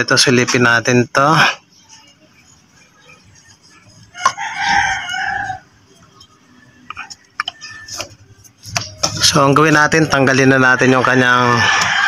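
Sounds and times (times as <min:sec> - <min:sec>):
rooster crowing: 0:04.0 - 0:08.2, 0:10.6 - 0:12.0.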